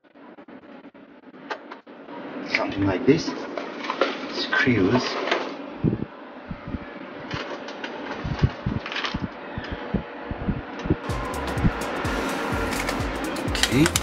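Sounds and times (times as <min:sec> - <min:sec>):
steady low hum: 0:05.7 - 0:07.0.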